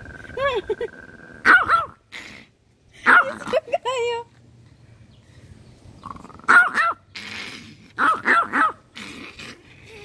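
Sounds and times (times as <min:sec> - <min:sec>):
small dog barking angrily: 0:01.4 - 0:02.0, 0:03.0 - 0:03.5, 0:06.4 - 0:09.3.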